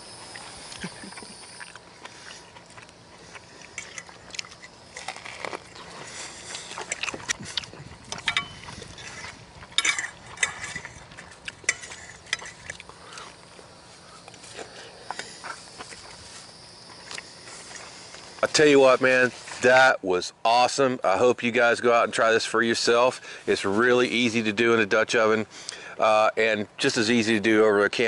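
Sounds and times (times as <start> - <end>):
cutlery clinking on plates: 8.2 - 8.6, 9.8 - 10.9.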